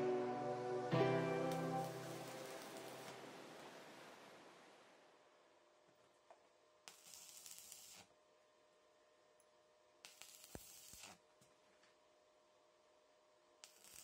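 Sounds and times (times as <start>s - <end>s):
welding arc sizzling: 1.5s - 4.2s, 6.8s - 8.1s, 10.0s - 11.2s, 13.6s - 14.0s.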